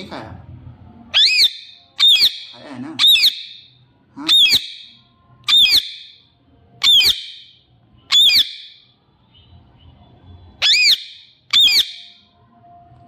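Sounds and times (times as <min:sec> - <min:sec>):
parakeet squawking: 0:01.1 - 0:08.9, 0:10.6 - 0:12.3.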